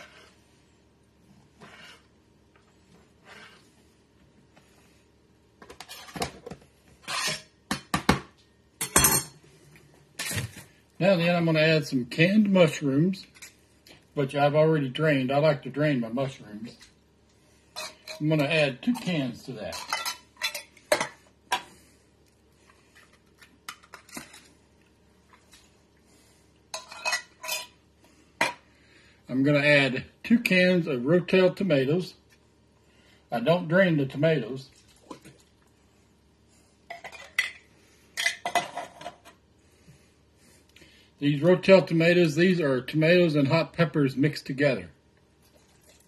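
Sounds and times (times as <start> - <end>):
knife scraping against ceramic crock: 0.0 - 0.4, 7.0 - 7.5.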